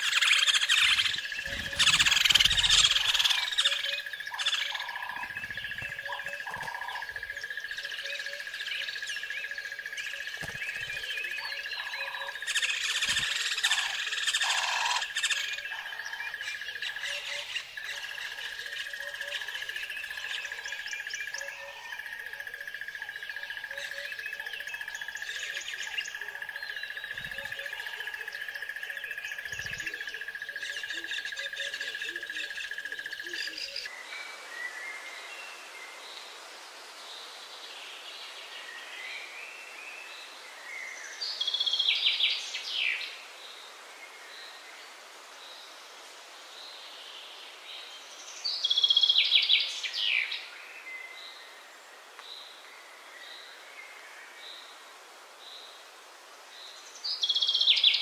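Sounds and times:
birds chirping: 0.0 - 22.1, 22.7 - 33.9.

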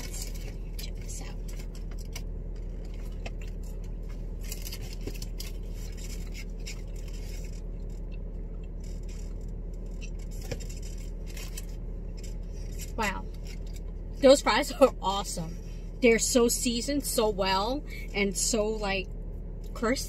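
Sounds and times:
chewing crisp fries: 0.0 - 14.2
low car cabin hum: 0.0 - 20.0.

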